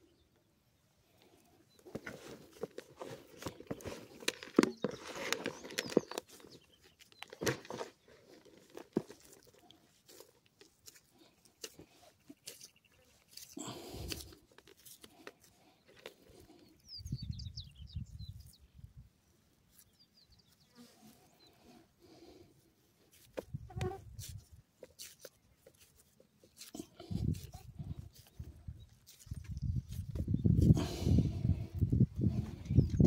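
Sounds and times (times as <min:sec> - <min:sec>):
hands squeezing crunchy bait: 0:01.9 - 0:16.7, 0:23.1 - 0:33.0.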